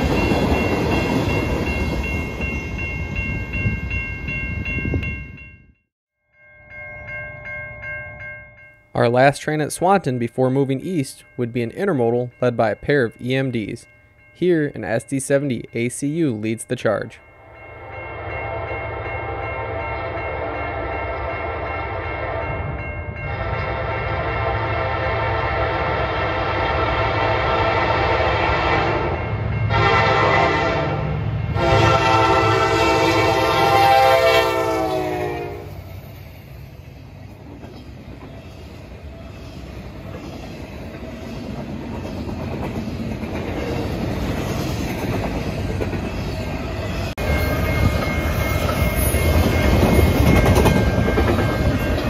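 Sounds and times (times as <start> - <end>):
train wheels rolling on rails: 0.0 - 5.1, 35.8 - 52.0
locomotive air horn blasts: 23.3 - 35.8.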